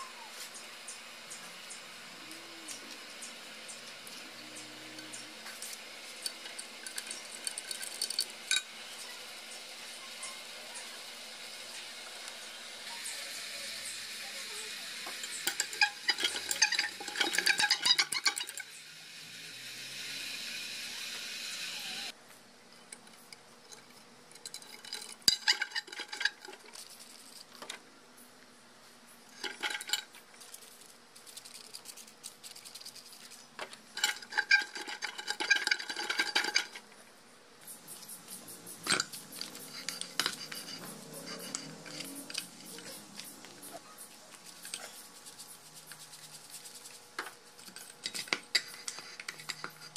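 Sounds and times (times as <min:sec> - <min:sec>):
steady hiss: 0:00.0 - 0:22.2.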